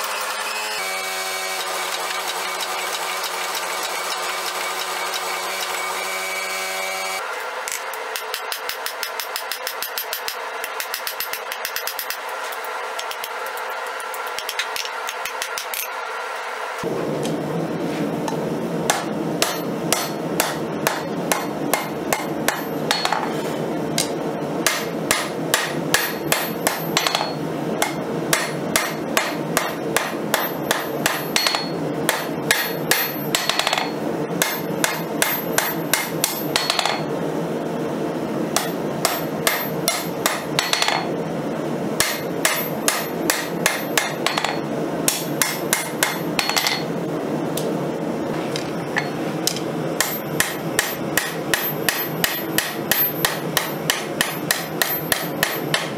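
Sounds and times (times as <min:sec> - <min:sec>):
steady background noise: 0:05.0 - 0:55.9
hammer striking steel on anvil: 0:07.7 - 0:13.6, 0:18.9 - 0:23.4, 0:24.0 - 0:37.1, 0:38.6 - 0:41.1, 0:42.0 - 0:46.9, 0:49.0 - 0:55.9.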